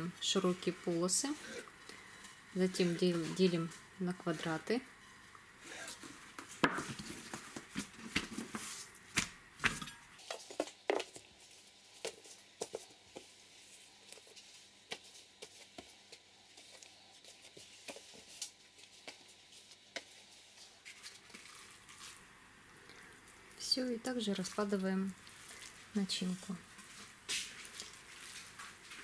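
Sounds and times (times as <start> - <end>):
hands slapping dough: 6.3 - 11.2.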